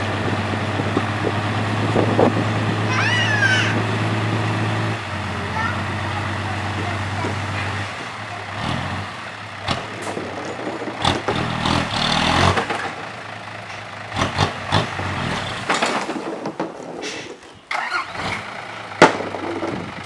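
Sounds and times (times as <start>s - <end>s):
diesel truck engine running: 0.0s - 16.4s, 17.0s - 20.0s
knocks and thuds: 15.5s - 17.4s, 19.0s - 20.0s.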